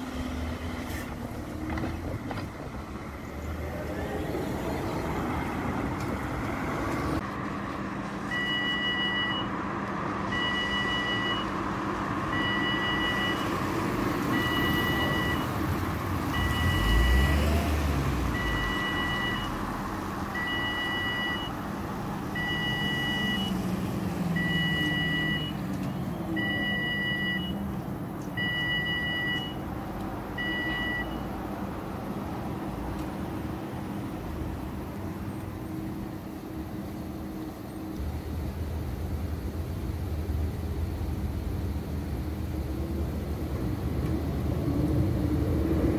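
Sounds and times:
traffic hum: 0.0s - 45.9s
crossing alarm beeping: 8.3s - 9.6s, 10.3s - 11.6s, 12.3s - 13.6s, 14.3s - 15.6s, 16.3s - 17.7s, 18.3s - 19.7s, 20.3s - 21.6s, 22.3s - 23.6s, 24.3s - 27.7s, 28.3s - 31.3s.

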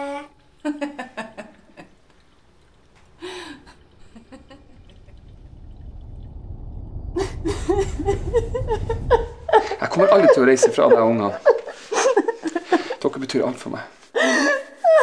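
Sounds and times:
low rumble: 0.4s - 11.8s.

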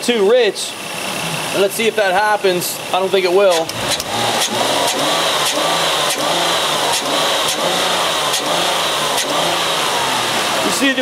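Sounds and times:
car engine revving: 3.5s - 11.0s.

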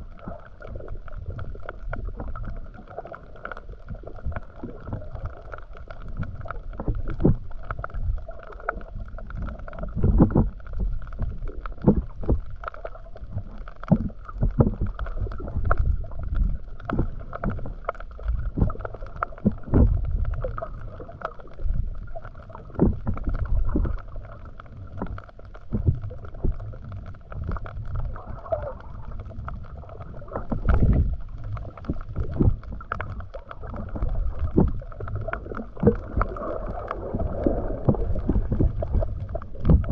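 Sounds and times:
steady underwater hum: 0.0s - 39.9s
underwater swishes and thumps: 0.0s - 39.9s.

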